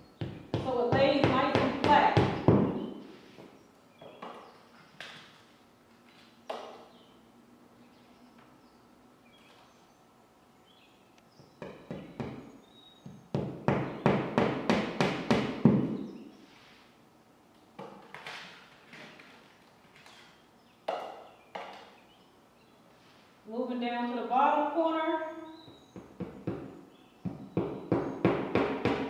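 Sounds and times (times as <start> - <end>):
hammer tapping nail: 27.3 - 29.0.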